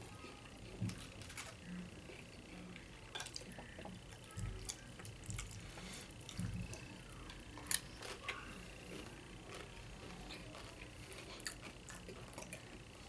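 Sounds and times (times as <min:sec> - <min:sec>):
chewing and mouth sounds: 0:00.5 - 0:13.0
tortilla chips crackling: 0:04.2 - 0:12.8.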